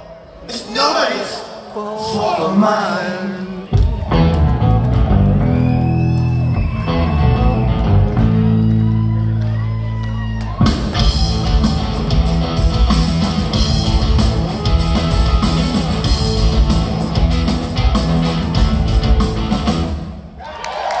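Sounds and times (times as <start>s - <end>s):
electric guitars: 3.5s - 20.2s
live rock band playing: 3.6s - 20.3s
drum kit beat: 10.6s - 20.1s.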